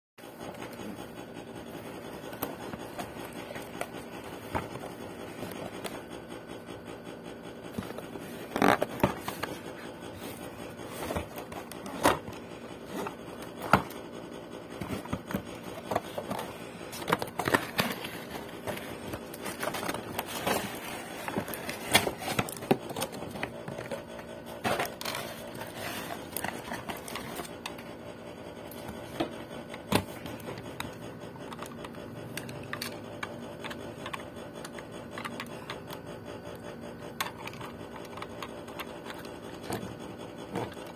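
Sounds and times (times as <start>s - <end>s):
cardboard packaging being opened: 14.8s - 27.5s.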